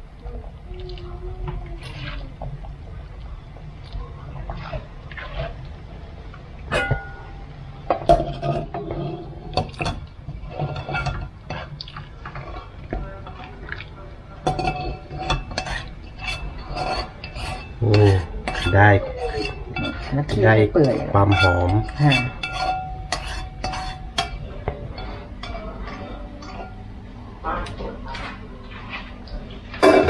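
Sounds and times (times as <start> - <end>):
steady low hum: 0.0 - 30.0
utensils and pots clattering: 6.7 - 30.0.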